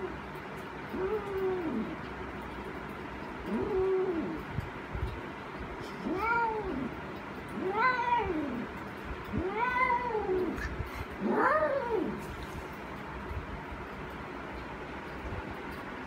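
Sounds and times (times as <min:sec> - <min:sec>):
cat yowling: 0:00.9 - 0:02.0, 0:03.5 - 0:04.4, 0:06.0 - 0:08.7, 0:09.3 - 0:12.2.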